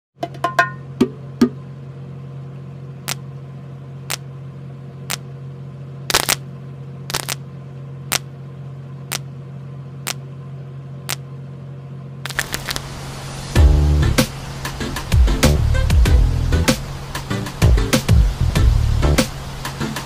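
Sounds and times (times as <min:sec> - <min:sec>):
steady low hum: 0:00.3 - 0:20.0
sharp ticks: 0:05.1 - 0:05.3, 0:07.1 - 0:07.4.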